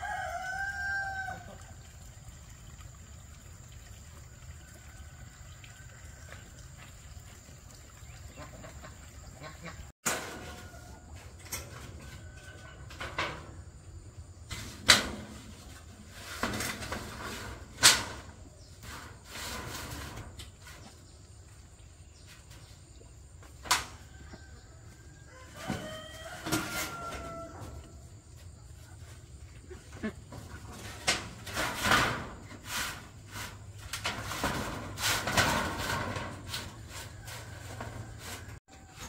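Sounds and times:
scraping or rustling: 14.4s - 21.3s, 25.6s - 39.0s.

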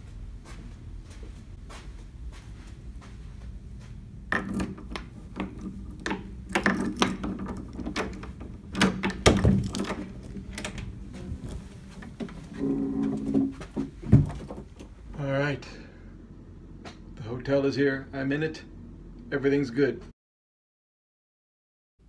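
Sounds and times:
irregular knocks and thuds: 13.1s - 15.0s.

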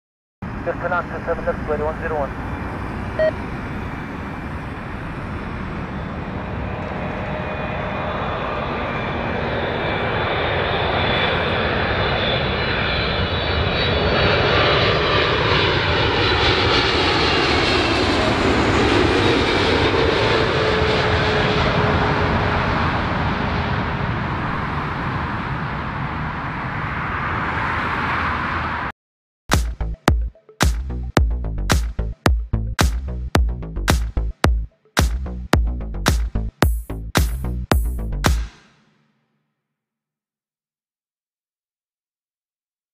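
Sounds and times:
jet airliner passing overhead: 0.4s - 28.9s.

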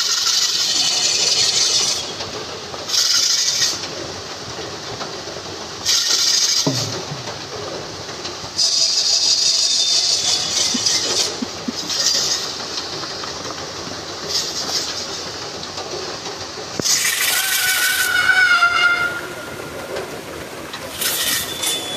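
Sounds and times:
shrill steady tone: 21.2s - 21.9s.

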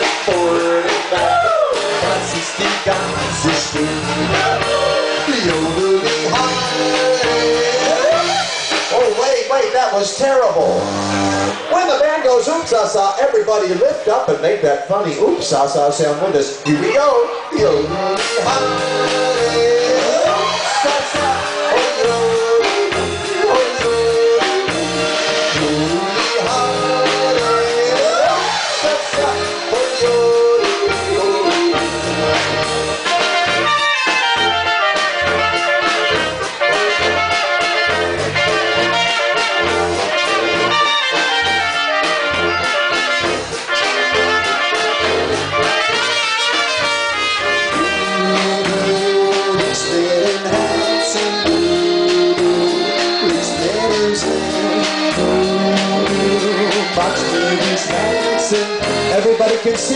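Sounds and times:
tuba: 0.0s - 11.9s, 16.8s - 59.9s
accordion: 0.0s - 59.9s
drums: 0.0s - 59.9s
trumpets: 10.4s - 12.6s, 16.8s - 59.9s.

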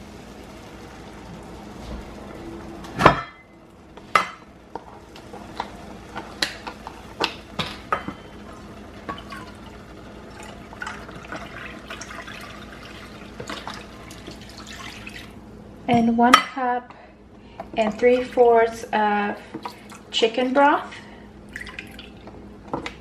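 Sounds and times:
broth pouring into saucepan: 5.0s - 15.4s.

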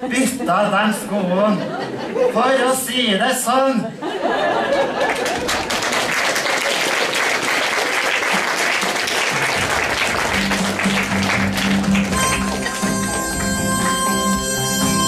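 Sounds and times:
audience applauding: 4.7s - 14.7s
music with droning note: 10.4s - 15.0s.

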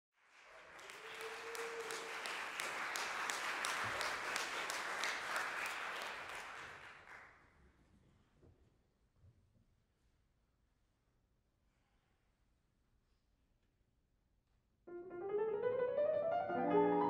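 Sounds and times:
audience applauding: 0.1s - 7.4s.

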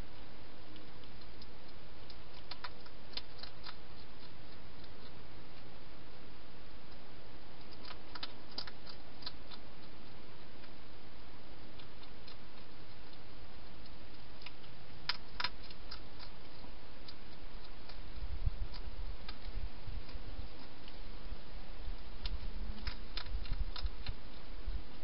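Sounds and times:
hedgehog crunching food: 0.0s - 25.0s
steady background hiss: 0.0s - 25.0s.

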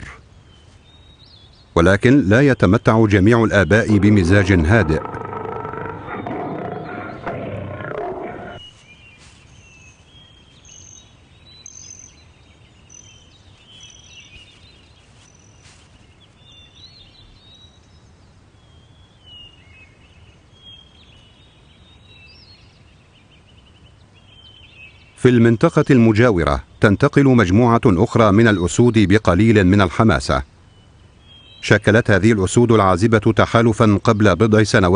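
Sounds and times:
birds chirping faintly: 0.0s - 34.9s
lion growling: 3.7s - 8.6s.

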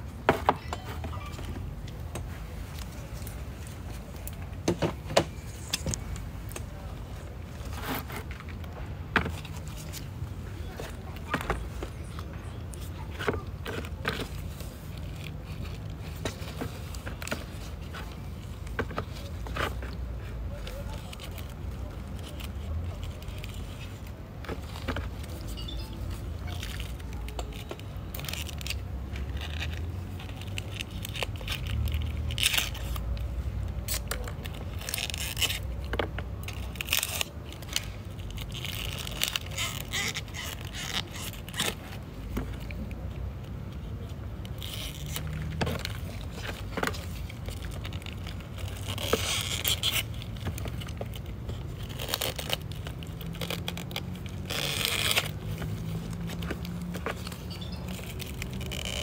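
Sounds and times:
dry leaves crackling: 43.9s - 59.0s.

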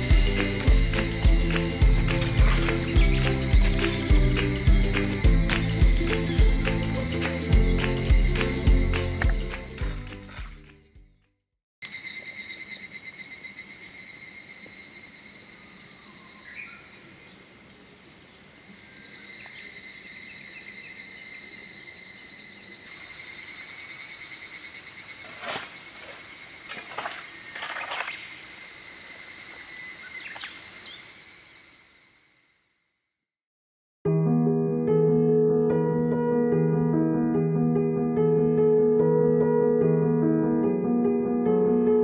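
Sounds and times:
cicadas chorus: 0.0s - 10.5s, 11.8s - 32.8s.

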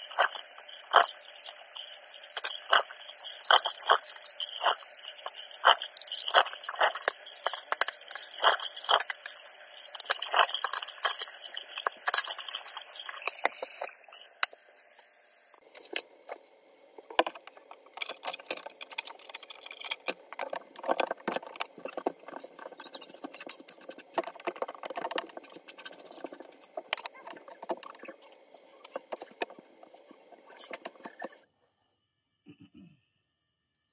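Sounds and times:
water splashing and dripping in drain: 0.0s - 14.5s.

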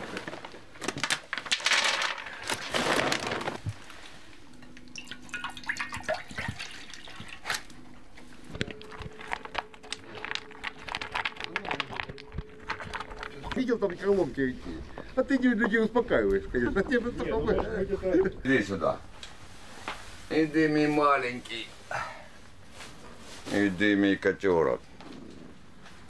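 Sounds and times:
water pouring into a bowl: 4.8s - 7.5s
dog crunching dry kibble: 7.3s - 15.4s.

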